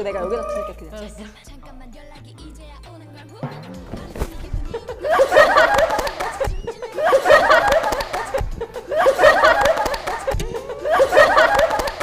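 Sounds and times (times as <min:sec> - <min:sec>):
women laughing: 0:04.8 - 0:12.0.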